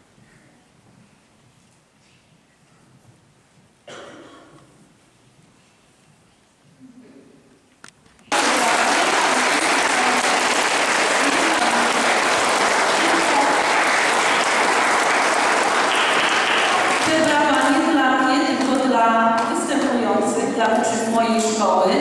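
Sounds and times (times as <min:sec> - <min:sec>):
audience applauding: 0:08.3 - 0:18.8.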